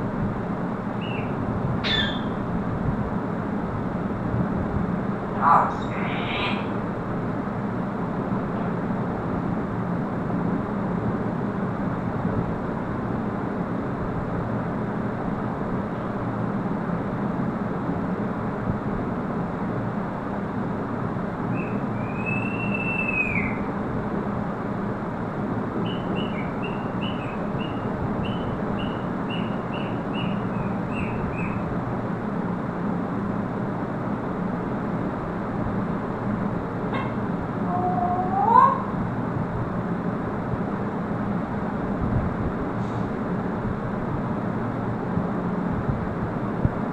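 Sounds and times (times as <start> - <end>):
background hiss and hum: 0.0 - 46.9
parrot short high chirps: 1.0 - 2.4, 21.6 - 23.6
parrot whistling: 1.0 - 2.4, 21.5 - 23.6, 25.8 - 31.6.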